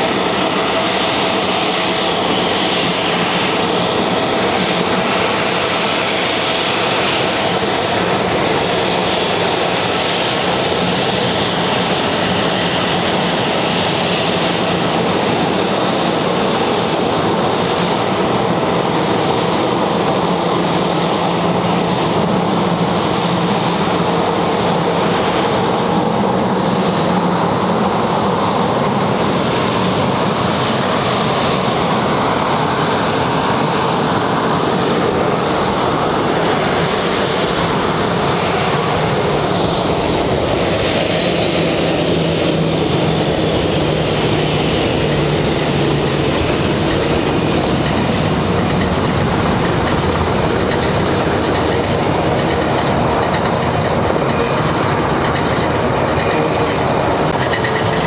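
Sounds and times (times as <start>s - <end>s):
jet engine roar: 0.0s - 58.0s
high fan whine: 40.0s - 58.0s.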